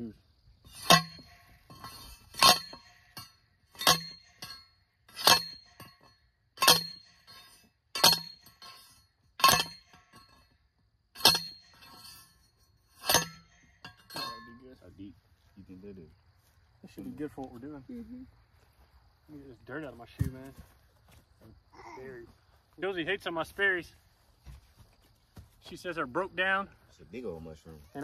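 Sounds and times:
post driver clanking on metal post: 0.7 - 10.4, 11.2 - 14.6.

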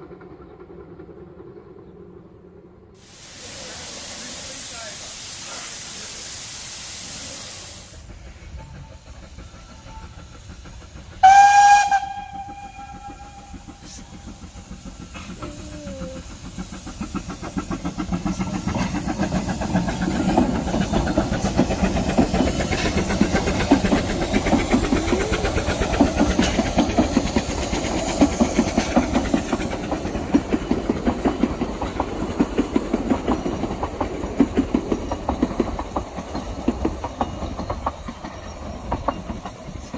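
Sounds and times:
steam locomotive hissing steam: 3.0 - 39.9
locomotive exhaust beats: 3.4 - 39.9
rail clatter: 8.0 - 39.9
steam whistle blast: 11.2 - 13.7.

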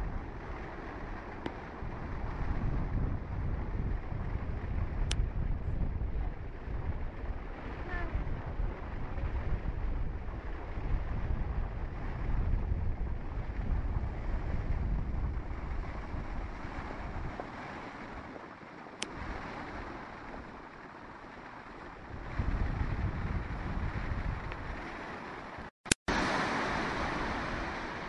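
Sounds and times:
wind rumbling on microphone: 0.0 - 28.0
rapids churning: 12.7 - 28.0.

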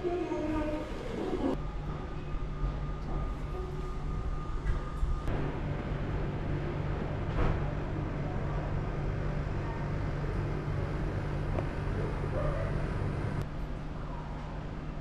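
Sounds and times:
train equipment hum: 0.0 - 14.8.

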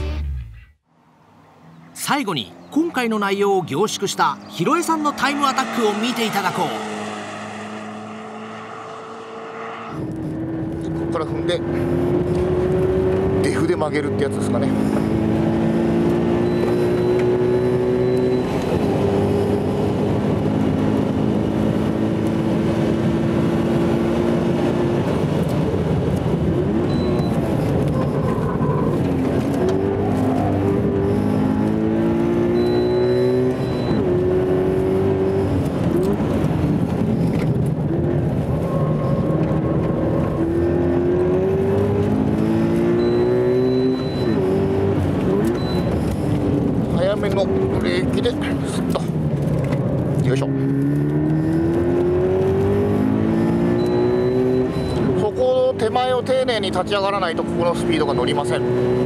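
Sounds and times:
road noise: 0.0 - 59.0
sports car engine revving: 3.9 - 59.0
short high beep: 43.0 - 44.5, 53.8 - 55.1.

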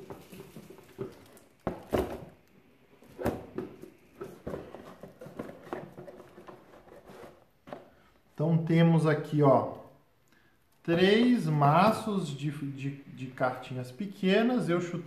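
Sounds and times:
cardboard scraping and rustling: 3.1 - 7.9.

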